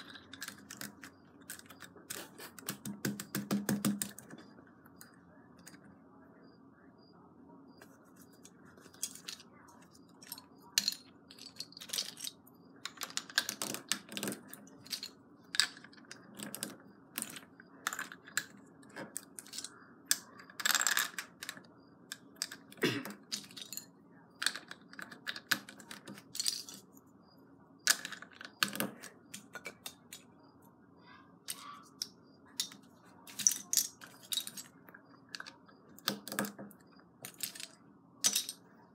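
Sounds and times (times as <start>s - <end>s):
plastic bricks clicking: 0.0s - 4.4s, 10.2s - 26.8s, 27.8s - 30.3s, 31.5s - 38.6s.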